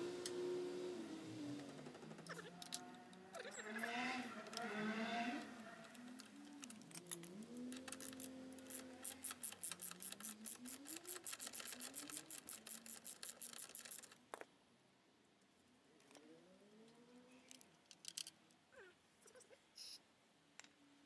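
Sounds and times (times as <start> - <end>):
socket ratchet clicking: 5.9 - 14.2.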